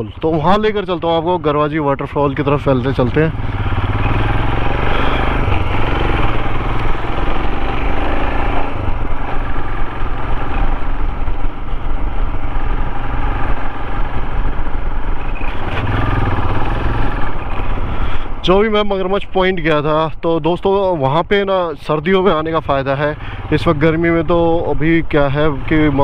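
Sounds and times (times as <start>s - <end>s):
motorcycle engine running: 2.2s - 18.4s, 22.9s - 26.0s.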